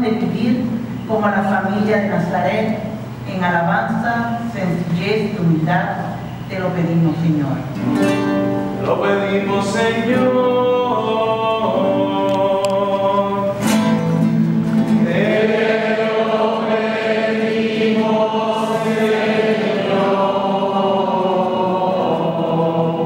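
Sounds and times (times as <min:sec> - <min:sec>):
acoustic guitar: 0:06.1 - 0:23.0
congregation singing: 0:07.8 - 0:23.0.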